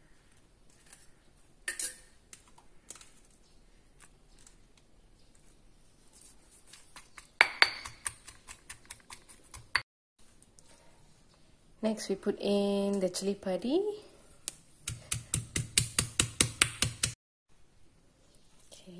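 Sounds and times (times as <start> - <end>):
garlic cloves clicking in mortar: 7.0 - 9.8.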